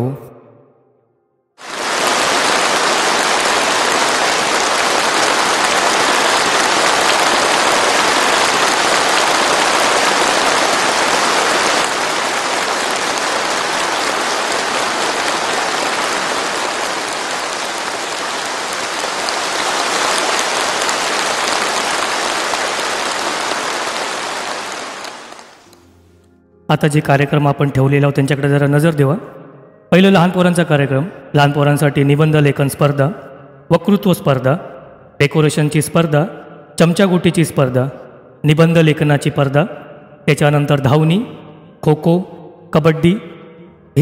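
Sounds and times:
crowd applauding: 1.6s - 25.7s.

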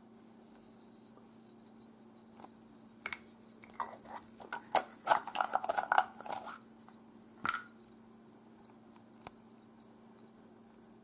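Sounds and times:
rustling and scraping: 3.7s - 7.0s.

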